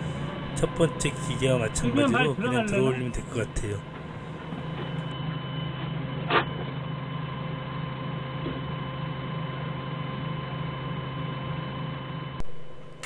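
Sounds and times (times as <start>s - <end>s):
forklift engine idling: 0.0s - 5.2s.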